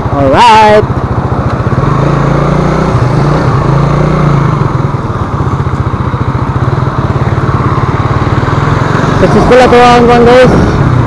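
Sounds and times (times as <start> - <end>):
motorcycle engine at low revs: 0.0 - 11.0.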